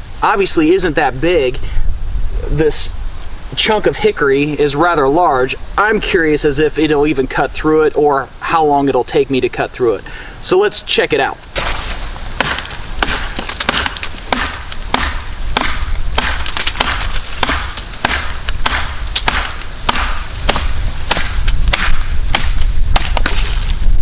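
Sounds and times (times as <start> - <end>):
machete chopping a log: 12.4 - 23.6.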